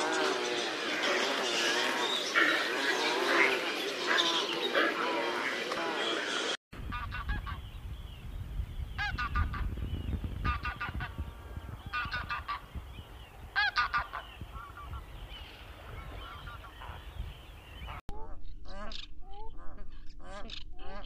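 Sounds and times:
goose honking: 13.6 - 14.3.

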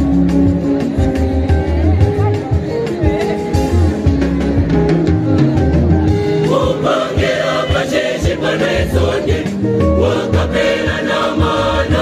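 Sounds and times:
band with drums and keyboard: 0.0 - 12.0
choir singing in parts: 6.4 - 12.0.

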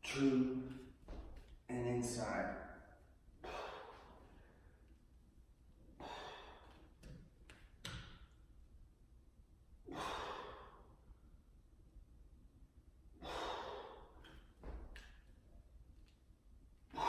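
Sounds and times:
man exhaling forcefully: 3.4 - 4.2, 6.0 - 6.8, 9.9 - 11.0, 13.2 - 14.2.

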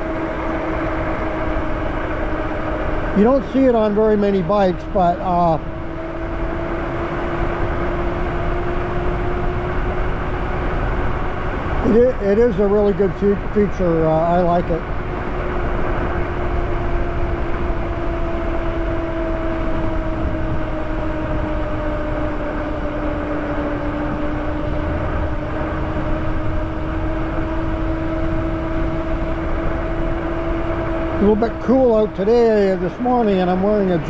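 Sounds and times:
electric hub motor whining: 0.0 - 34.0
wind noise on microphone: 14.8 - 31.4.

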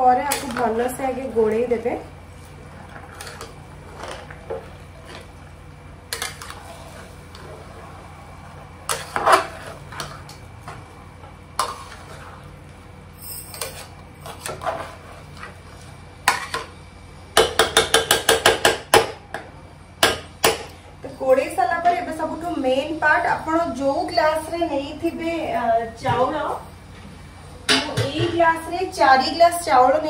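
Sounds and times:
metal spoon scraping a pot: 2.8 - 5.3, 6.1 - 7.6, 8.9 - 10.3, 11.6 - 12.5, 13.2 - 15.5.

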